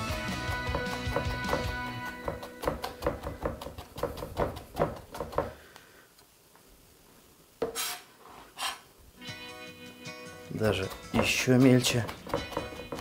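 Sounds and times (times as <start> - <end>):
knife chopping on cutting board: 0.3 - 5.6, 10.8 - 13.0
knife scraping board: 7.6 - 8.9.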